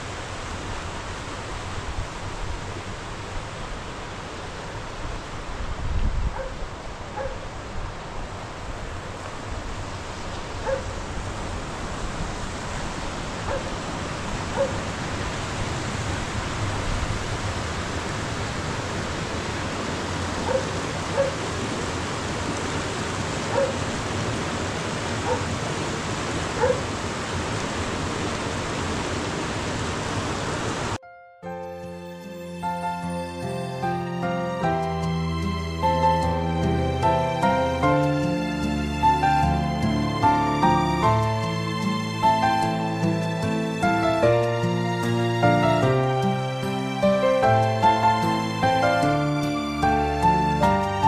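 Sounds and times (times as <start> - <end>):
rain falling: 0.0 - 31.0, 33.0 - 51.0
dog barking: 6.3 - 6.6, 7.2 - 7.5, 10.6 - 11.0, 13.5 - 13.7, 14.5 - 14.8, 20.4 - 21.4, 23.5 - 23.8, 25.2 - 25.5, 26.6 - 26.9.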